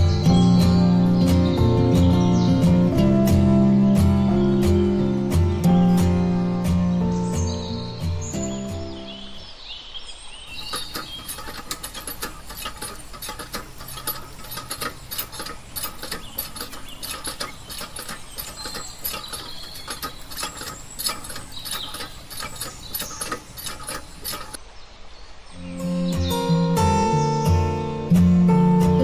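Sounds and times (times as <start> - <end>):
water stream splashing into pond: 10.5 - 24.6.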